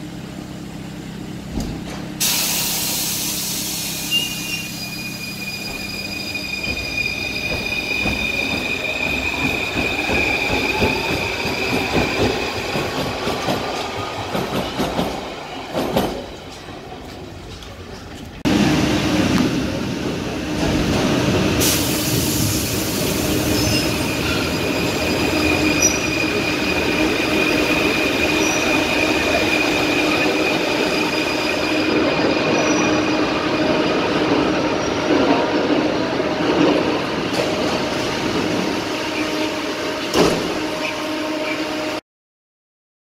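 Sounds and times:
train doors clunk: 1.5s - 2.5s, 6.6s - 18.4s, 40.0s - 40.7s
train braking to a stop: 2.2s - 16.6s, 18.5s - 42.0s
steel wheels squealing: 3.6s - 13.0s, 22.4s - 33.9s.

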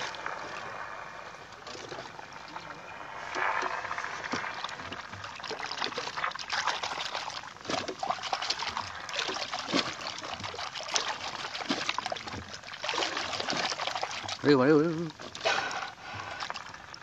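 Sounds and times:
sea water splashing: 0.0s - 17.0s.

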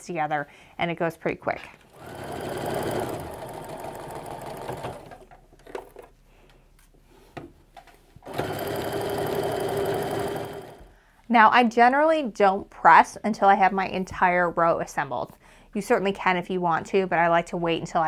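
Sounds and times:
sewing machine stitching: 1.9s - 5.8s, 8.2s - 10.9s.

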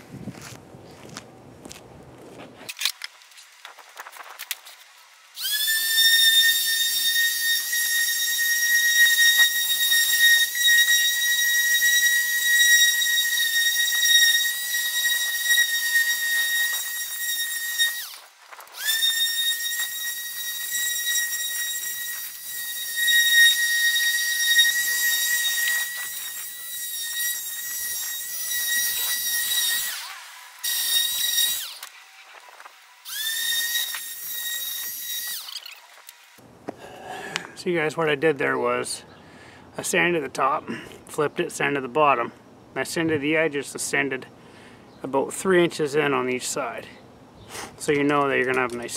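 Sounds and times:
electric sander whining: 5.2s - 36.4s.

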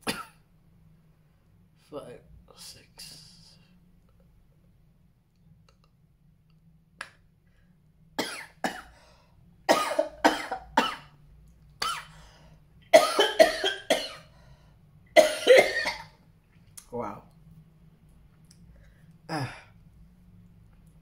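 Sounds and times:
man coughing: 0.0s - 0.4s, 9.7s - 11.1s, 12.9s - 14.2s, 15.2s - 16.1s.

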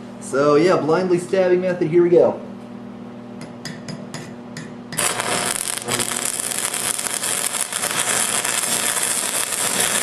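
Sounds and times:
welding arc crackling hiss: 4.9s - 10.0s.

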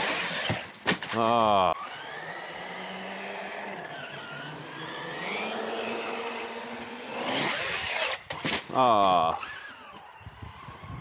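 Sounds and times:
electric motor whine: 1.8s - 8.2s.

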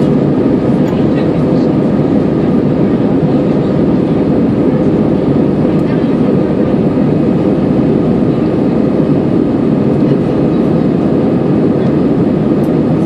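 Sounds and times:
jet engines and airflow rumble: 0.0s - 13.0s.

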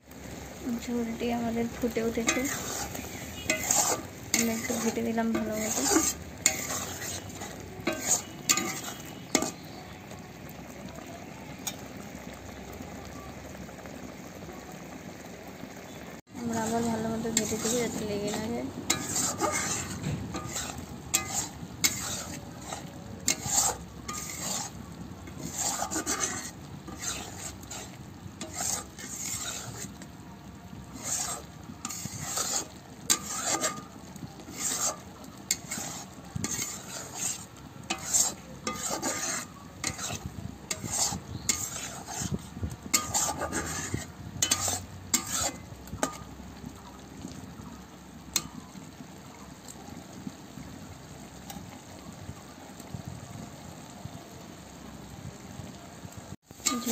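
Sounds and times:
gravy bubbling and sizzling: 0.0s - 56.9s
spatula scraping pan: 0.1s - 12.4s, 16.3s - 30.1s, 30.7s - 47.6s, 48.3s - 49.0s, 56.5s - 56.9s.

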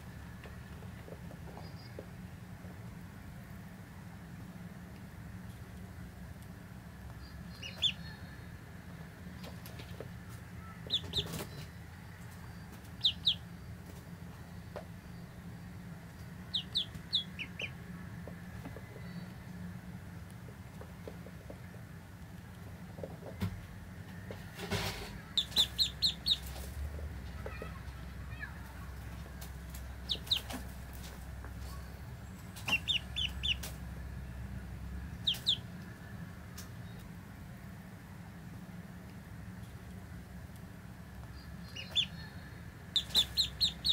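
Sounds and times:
low steady hum: 0.0s - 43.9s
ducklings peeping: 7.1s - 8.5s, 9.4s - 19.6s, 25.2s - 35.8s, 41.1s - 43.9s.

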